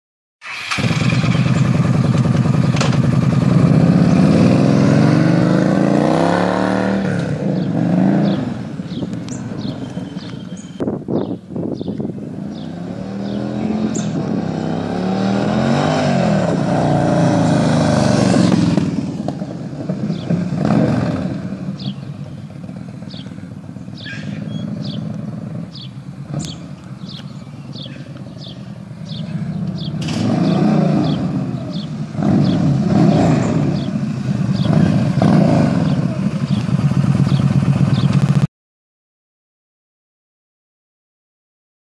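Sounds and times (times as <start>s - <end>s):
motorcycle engine revving: 0.4s - 38.5s.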